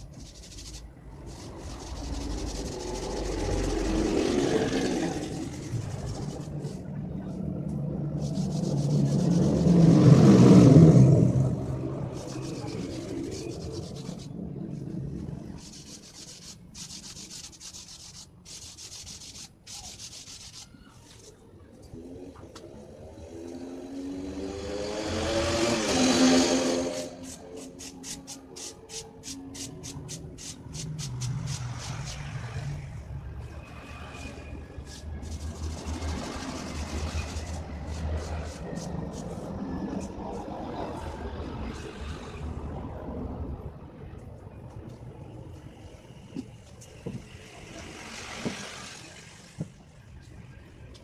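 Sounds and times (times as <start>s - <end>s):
paint rubbing on styrofoam: 0.0s - 6.8s, 8.2s - 9.9s, 12.1s - 14.3s, 15.4s - 21.3s, 27.0s - 32.4s, 34.8s - 39.5s
low engine-like hum: 0.0s - 16.0s.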